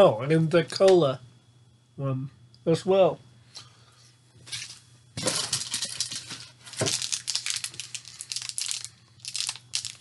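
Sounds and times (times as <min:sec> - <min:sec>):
plastic packaging crinkling: 0:05.2 - 0:10.0.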